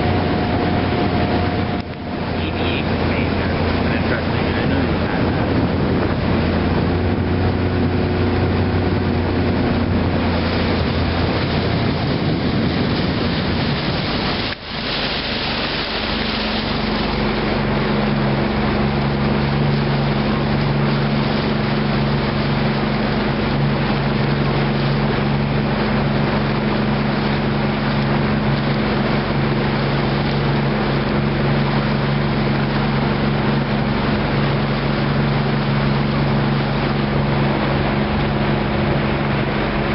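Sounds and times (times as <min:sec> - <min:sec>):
constant rushing noise: 0:00.0 - 0:39.9
motorboat engine running: 0:00.0 - 0:39.9.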